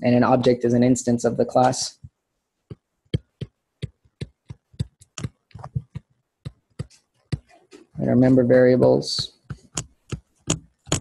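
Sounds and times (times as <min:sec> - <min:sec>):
stylus clicking on tablet screen: 0:01.6 - 0:08.0, 0:09.4 - 0:11.0.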